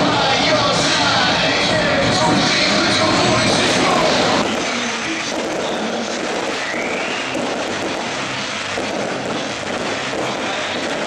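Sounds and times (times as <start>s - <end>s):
fireworks crackling: 0.0s - 11.0s
rising firework whistle: 3.5s - 11.0s.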